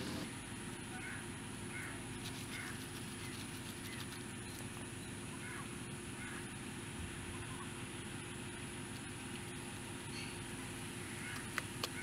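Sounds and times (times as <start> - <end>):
faint geese honking: 0.0 - 4.1, 5.2 - 8.0, 10.0 - 12.0.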